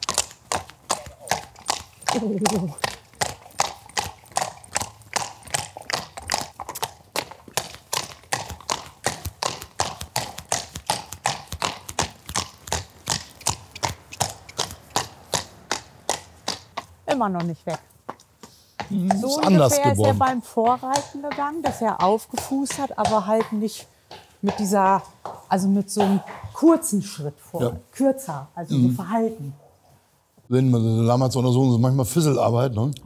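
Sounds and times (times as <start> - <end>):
horse hooves trotting on paving: 0.0 - 28.4.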